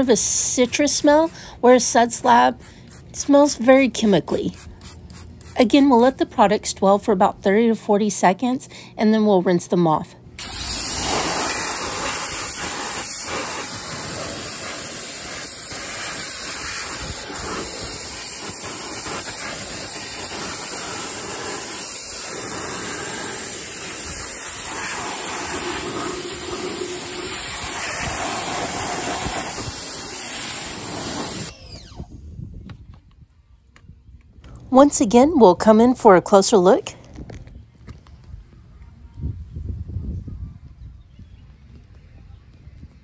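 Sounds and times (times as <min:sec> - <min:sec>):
pressure washer spraying water: 0:10.4 - 0:31.5.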